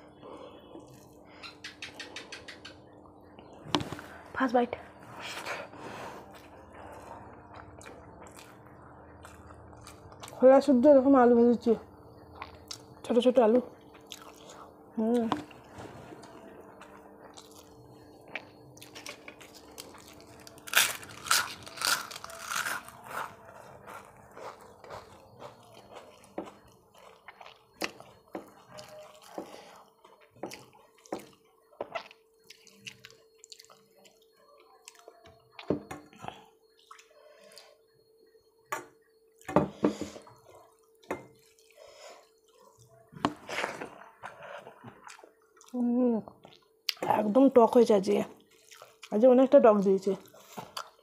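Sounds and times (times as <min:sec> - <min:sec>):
faint steady hum: 0:00.0 - 0:51.0.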